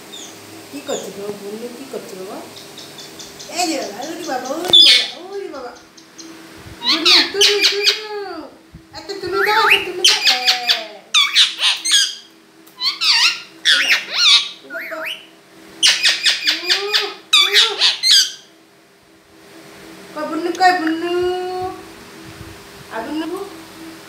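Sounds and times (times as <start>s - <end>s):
parakeet squawking and chattering: 2.6s - 8.1s, 9.4s - 18.5s.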